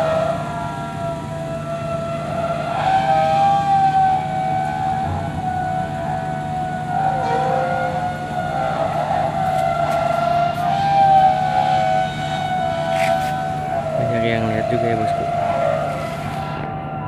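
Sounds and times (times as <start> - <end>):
engine low hum: 0.0 - 17.0
high whine wavering in pitch: 0.0 - 17.0.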